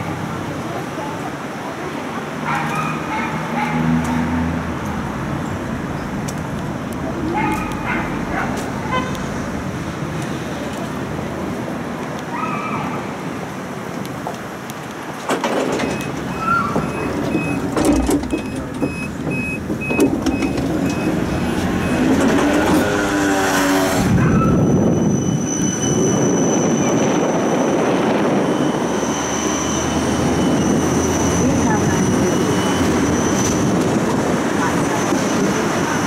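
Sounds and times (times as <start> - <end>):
wheels rumbling: 0.0 - 36.0
tram motor whine: 15.6 - 36.0.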